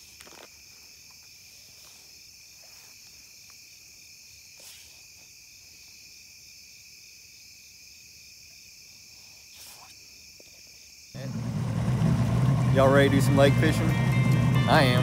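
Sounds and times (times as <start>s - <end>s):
night insects chirping: 0.0s - 15.0s.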